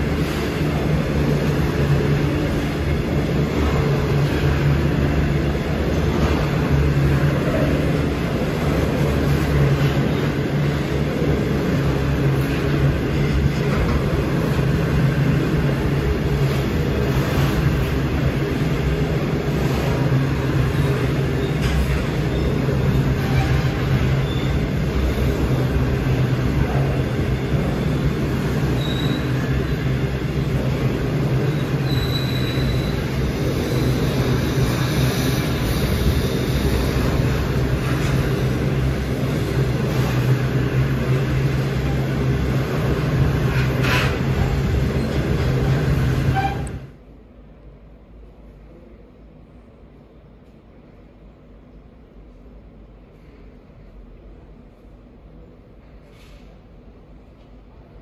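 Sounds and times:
train wheels rumbling on rail: 0:00.0 - 0:58.0
high squeaks: 0:31.4 - 0:33.9.

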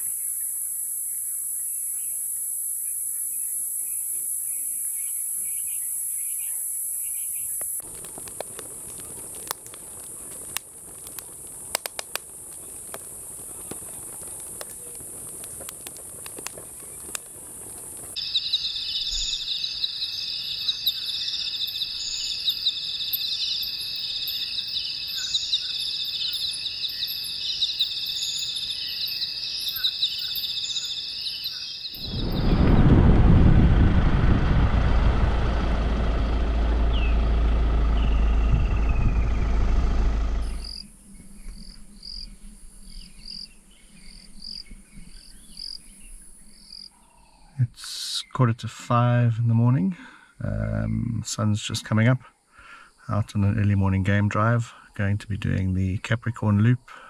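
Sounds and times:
insects trilling: 0:00.0 - 0:32.8, 0:36.2 - 0:46.9
vehicle engine and road rumble: 0:32.0 - 0:41.0.

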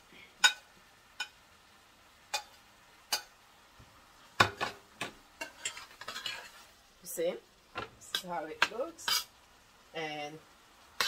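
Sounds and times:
metal spoon knocking on pan: 0:04.4 - 0:05.6.

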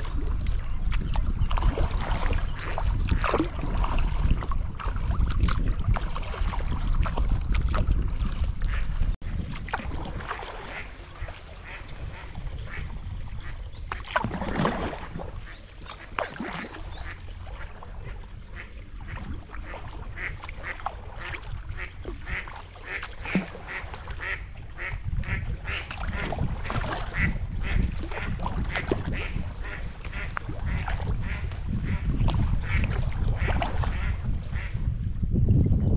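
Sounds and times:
wind rumble on microphone: 0:00.0 - 0:35.9
ducks quacking: 0:10.6 - 0:13.6, 0:15.4 - 0:34.8.

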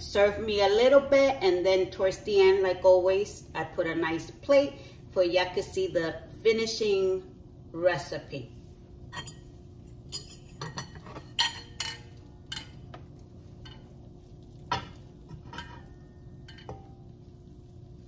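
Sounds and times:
steady low hum: 0:00.0 - 0:18.0
fork clinking against bowl: 0:09.1 - 0:09.5, 0:10.1 - 0:12.9, 0:14.7 - 0:17.1
spoon scraping and tapping pot: 0:14.7 - 0:17.0.

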